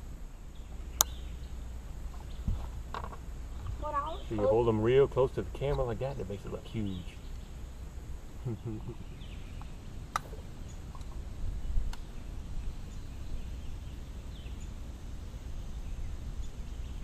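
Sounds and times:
faint bird chirps: 0.3s - 2.6s, 8.4s - 17.0s.

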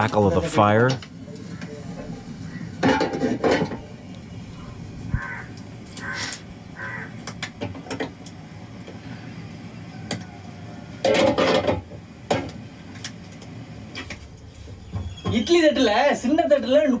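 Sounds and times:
crows cawing: 1.3s - 3.1s, 4.5s - 7.4s.

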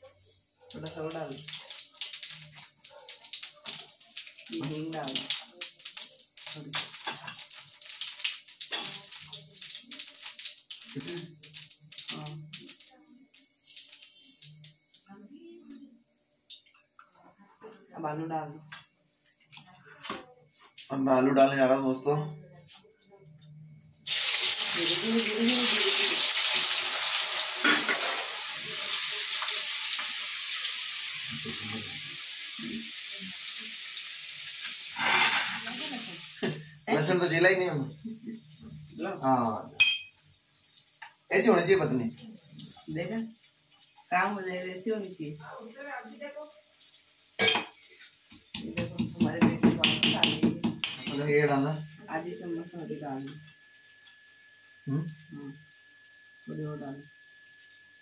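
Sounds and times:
seeds sizzling in hot oil: 0.8s - 15.0s, 24.0s - 48.6s.

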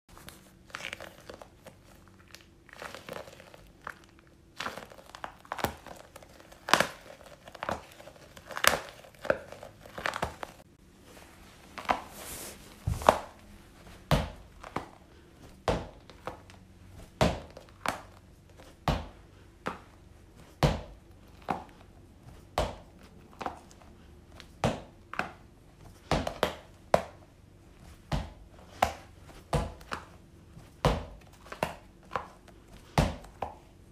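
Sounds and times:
gel balls squelching in hand: 0.2s - 10.7s
gel balls slapping against wall: 14.0s - 23.8s, 24.4s - 33.7s.

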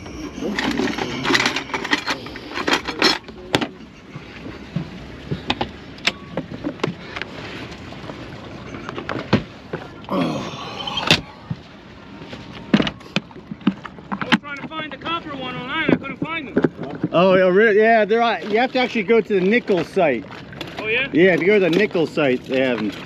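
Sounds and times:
short squeak: 0.0s - 3.0s.

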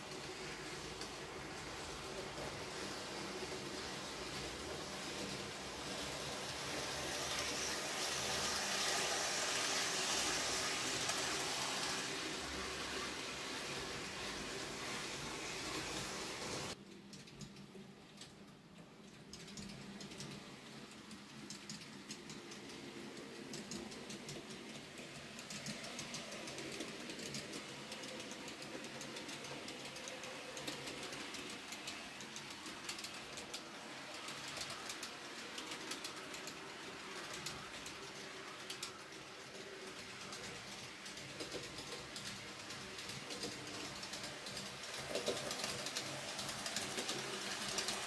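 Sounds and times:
model train motor hum: 0.0s - 16.8s, 22.1s - 48.0s
wheels clicking on rails: 0.0s - 48.0s.

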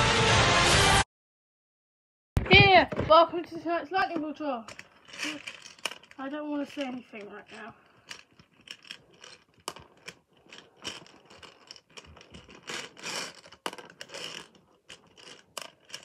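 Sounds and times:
plastic lottery balls rattling: 3.9s - 16.0s.

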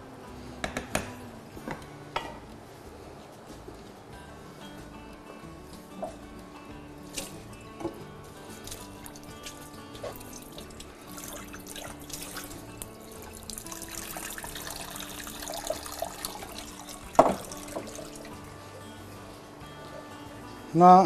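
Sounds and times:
soft background music: 0.0s - 21.0s
tap running into sink: 17.1s - 18.0s.

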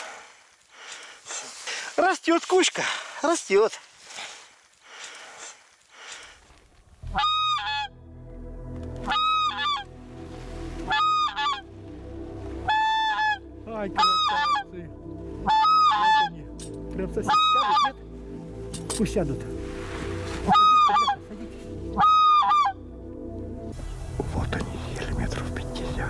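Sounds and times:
goose mouth call blown: 7.0s - 7.9s, 9.0s - 9.8s, 10.9s - 11.7s, 12.6s - 13.4s, 14.0s - 14.7s, 15.4s - 16.4s, 17.3s - 18.0s, 20.4s - 21.3s, 22.0s - 22.8s.

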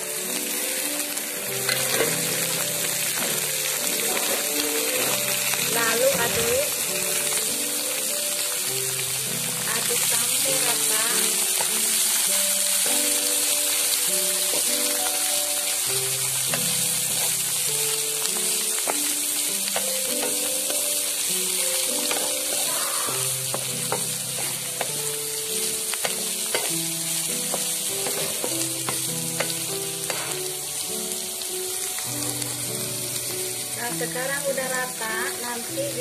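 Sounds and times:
food sizzling in a hot pan: 0.0s - 36.0s
soft background music: 0.0s - 36.0s
spatula scraping a pan: 26.4s - 26.8s.

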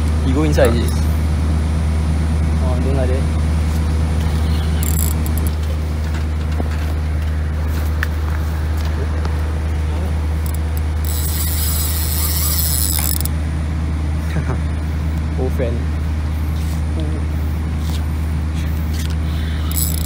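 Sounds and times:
steady low rumble: 0.0s - 20.0s
high hissing buzz: 10.4s - 13.3s.

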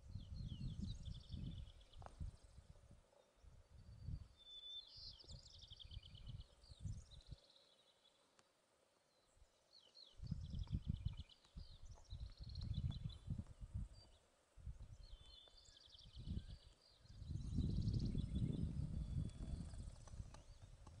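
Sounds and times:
wind rumbling on microphone: 0.0s - 4.3s, 5.0s - 7.4s, 10.2s - 21.0s.

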